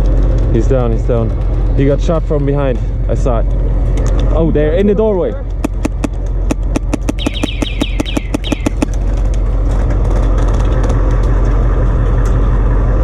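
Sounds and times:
vehicle engine drone: 0.0s - 13.0s.

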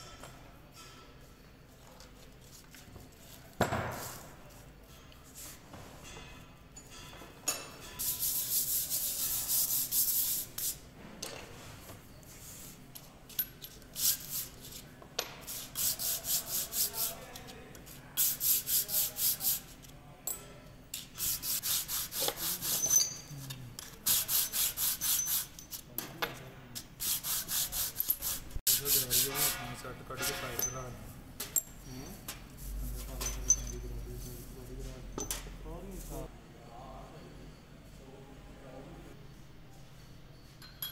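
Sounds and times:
metal scraping on abrasive cloth: 21.2s - 23.4s, 27.0s - 30.8s.

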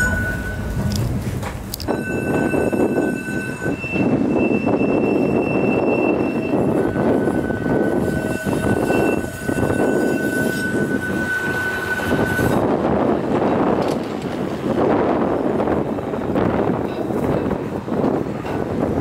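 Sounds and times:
high wheel squeal: 0.0s - 1.0s, 1.9s - 12.7s
tram wheels rumbling on rail: 0.0s - 19.0s.

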